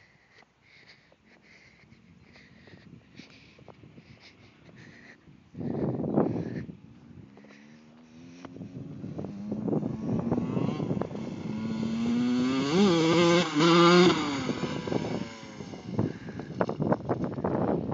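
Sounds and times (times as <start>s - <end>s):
dirt bike engine revving: 7.6s - 16.9s.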